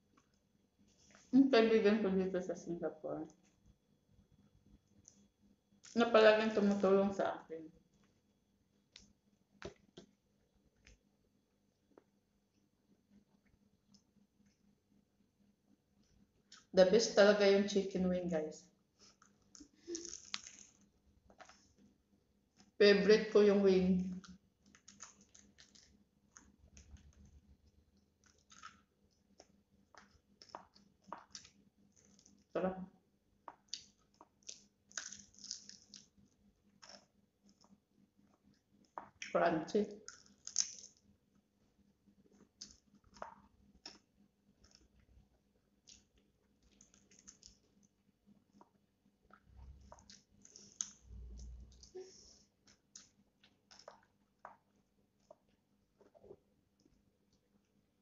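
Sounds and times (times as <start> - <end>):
chewing crispy food: 19.0 - 21.8, 24.1 - 32.5, 33.5 - 39.3, 40.0 - 41.1, 42.3 - 52.0, 52.6 - 57.7
wet mouth clicks: 40.0 - 41.0, 42.6 - 44.9, 48.6 - 52.0, 52.6 - 56.4.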